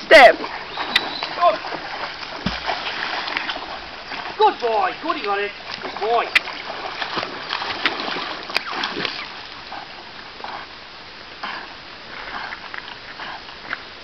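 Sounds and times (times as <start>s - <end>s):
water splashing from swimming dog: 0.0s - 10.7s.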